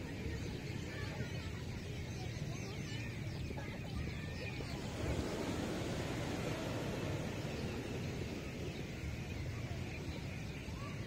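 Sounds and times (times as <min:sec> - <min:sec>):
ocean surf washing onto beach: 0:04.5 - 0:11.0.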